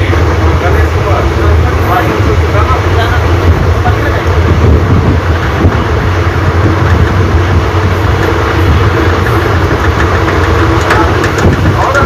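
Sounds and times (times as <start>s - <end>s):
train coach rumbling on track: 0.0s - 12.0s.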